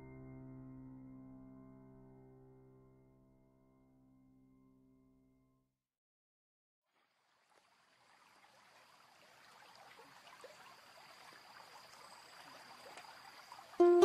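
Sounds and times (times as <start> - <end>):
faint high-pitched tone: 10.9 - 14.0.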